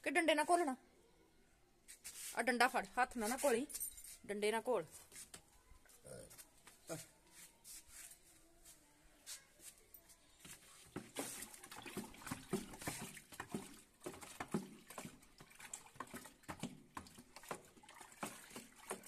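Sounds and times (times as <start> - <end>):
stick sloshing water in bucket: 10.5 - 19.0.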